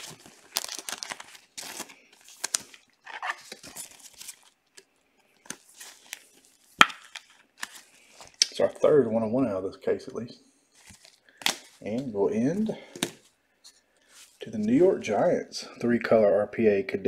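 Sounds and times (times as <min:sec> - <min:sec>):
plastic sleeve rustling and crinkling: 0:00.0 - 0:08.9, 0:10.7 - 0:15.1.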